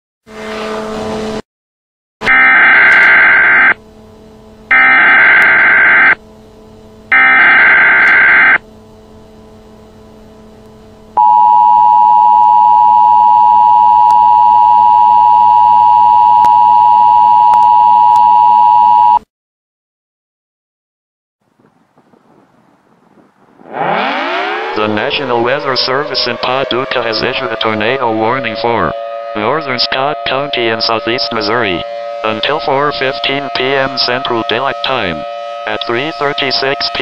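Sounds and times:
two-tone attention signal: 0:02.2 - 0:03.8, 0:04.7 - 0:06.2, 0:07.1 - 0:08.6, 0:11.2 - 0:19.2
buzzy digital data warble: 0:02.3 - 0:03.8, 0:04.7 - 0:06.2, 0:07.1 - 0:08.6.

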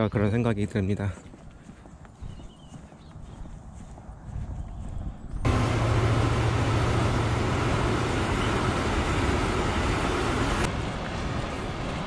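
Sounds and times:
road noise: 0:02.9 - 0:12.0
engine hum: 0:05.2 - 0:12.0.

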